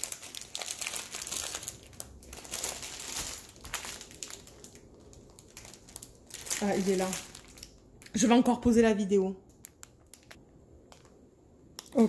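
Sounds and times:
plastic bags crinkling: 0.0 - 7.9, 9.5 - 10.4.

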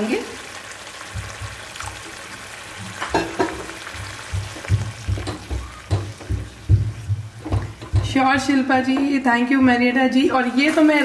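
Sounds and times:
water sizzling in hot pan: 0.0 - 11.0
low knocks against pan: 3.1 - 9.1.

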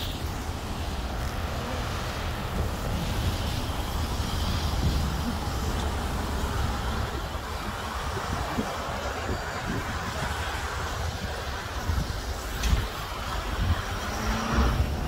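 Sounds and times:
cars passing: 0.0 - 15.0.

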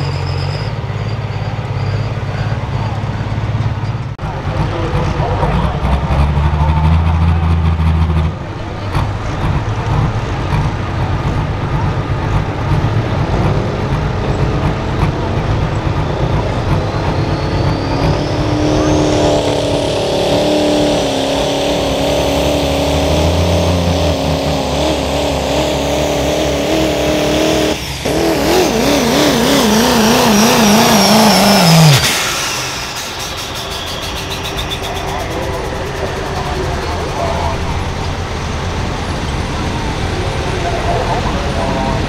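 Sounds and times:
diesel engine revving: 0.0 - 42.0
turbo whistle: 16.0 - 21.5, 27.8 - 37.2.

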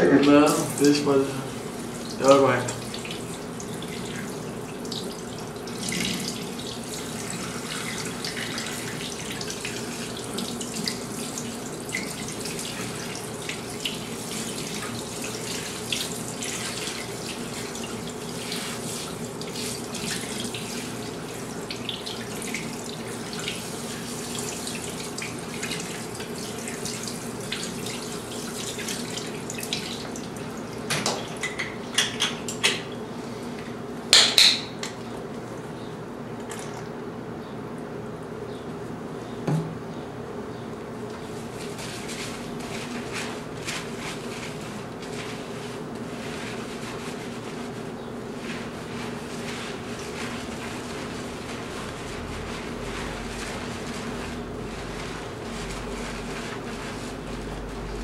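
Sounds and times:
sink sprayer spraying water: 0.0 - 30.9, 41.3 - 58.0
water splashing in sink: 0.0 - 32.1.

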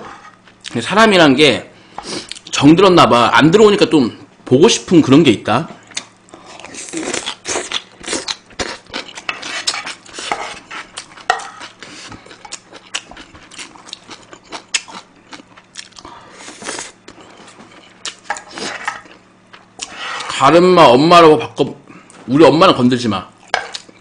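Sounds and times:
chewing: 5.9 - 20.0
spoon scraping a frying pan: 9.3 - 11.6, 18.3 - 19.0.

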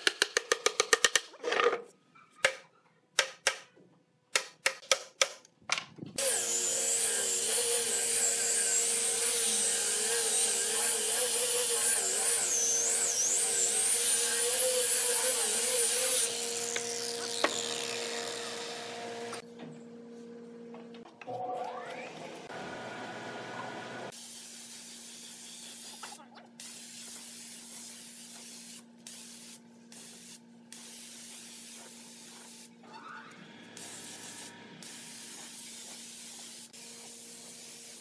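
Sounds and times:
angle grinder sanding wood: 6.2 - 19.4, 33.8 - 38.0.

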